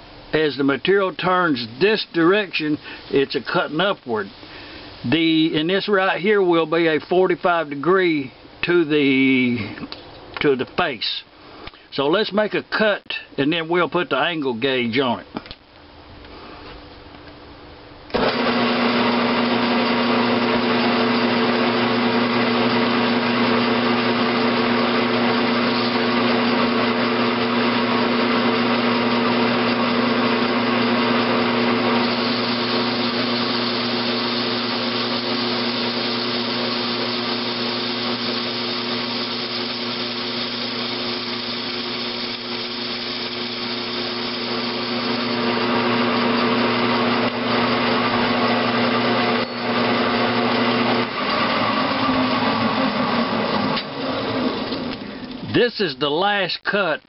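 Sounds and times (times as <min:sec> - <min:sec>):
metal lathe running: 0:18.2 - 0:55.0.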